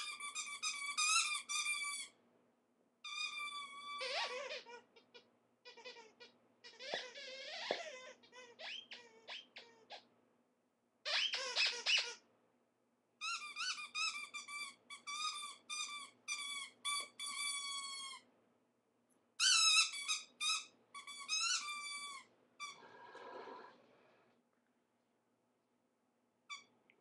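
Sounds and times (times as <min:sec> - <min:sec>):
rubber squeaky toy squeaking: 0:00.0 - 0:02.2, 0:03.0 - 0:10.1, 0:11.0 - 0:12.2, 0:13.2 - 0:18.3, 0:19.4 - 0:22.8, 0:26.5 - 0:26.7.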